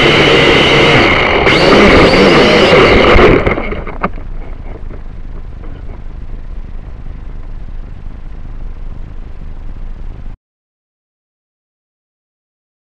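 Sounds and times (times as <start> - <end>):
low steady rumble: 1.0 - 10.4.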